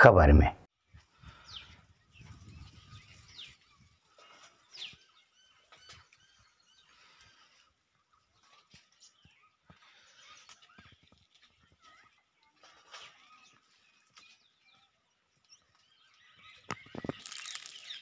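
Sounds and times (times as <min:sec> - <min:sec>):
faint bird chirps: 0:01.2 - 0:18.0.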